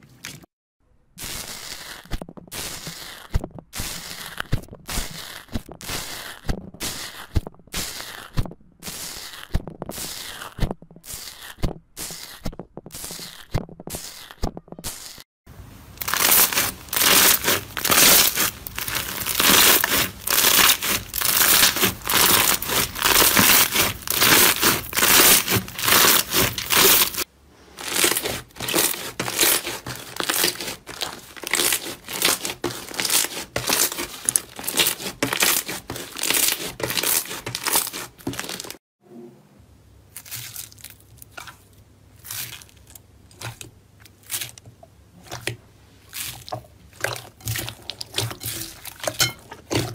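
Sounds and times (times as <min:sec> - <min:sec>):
slime crackling and popping: 0:01.2 - 0:15.2, 0:16.0 - 0:38.8.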